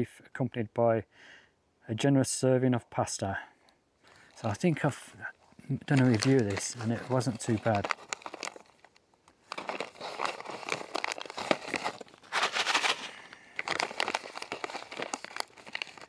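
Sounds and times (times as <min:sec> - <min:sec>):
food pouch crinkling: 0:05.8 - 0:16.0.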